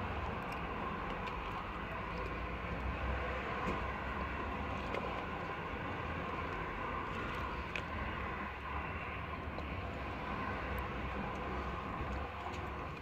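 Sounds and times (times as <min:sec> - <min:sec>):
low mechanical hum and rumble: 0:00.0 - 0:13.0.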